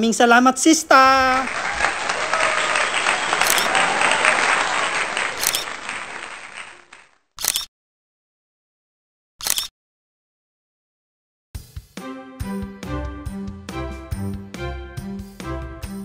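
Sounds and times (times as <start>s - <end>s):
crowd applause: 1.4s - 7.2s
short bursts of noise: 2.7s - 7.7s, 9.4s - 9.7s.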